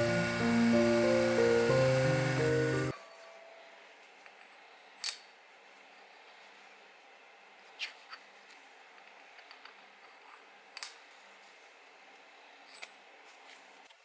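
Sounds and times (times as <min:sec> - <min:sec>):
faint steady background noise: 0:00.0 - 0:14.0.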